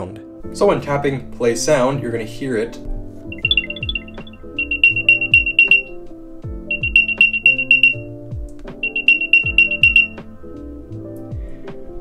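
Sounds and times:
background music with steady beat: 0:00.1 - 0:12.0
rapid high beeps: 0:03.3 - 0:05.9, 0:06.7 - 0:08.0, 0:08.8 - 0:10.2.

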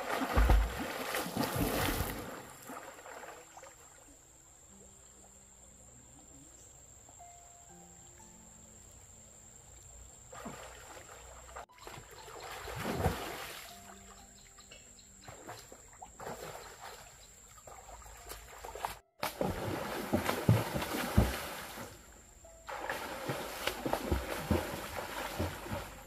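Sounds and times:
water splashing from swimmer: 0:00.0 - 0:04.0, 0:10.3 - 0:13.9, 0:15.3 - 0:26.0.

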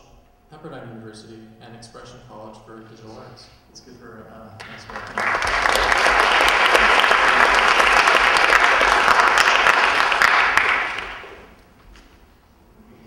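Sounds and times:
audience applauding: 0:04.6 - 0:11.6.

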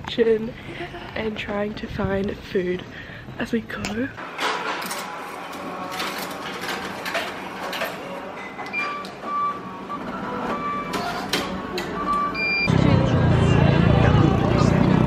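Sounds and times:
vending machine clicks and whirring: 0:03.8 - 0:12.7
short electronic beeps: 0:12.0 - 0:12.7.

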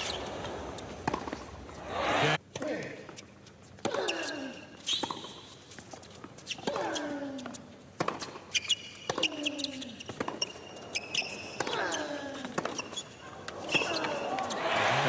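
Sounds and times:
sneakers squeaking on court: 0:00.0 - 0:02.4, 0:03.2 - 0:14.9
racket striking tennis ball: 0:00.0 - 0:02.6.

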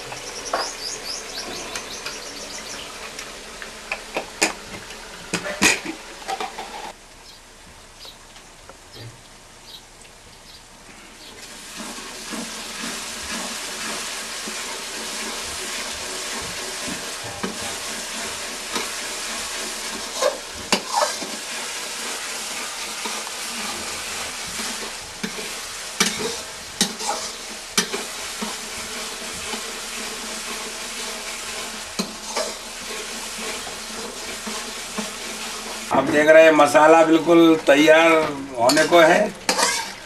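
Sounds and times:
spices sizzling in pan: 0:00.0 - 0:07.0, 0:11.4 - 0:40.0
metal ladle scraping pan: 0:16.3 - 0:35.8, 0:38.6 - 0:40.0.

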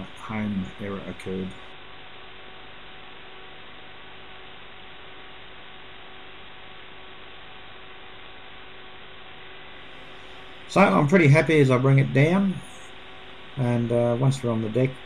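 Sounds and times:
faint hum: 0:00.0 - 0:15.0
steady hiss: 0:00.0 - 0:15.0.

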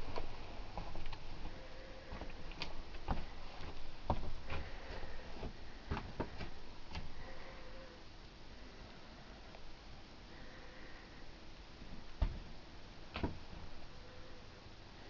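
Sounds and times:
footsteps: 0:00.0 - 0:07.2.

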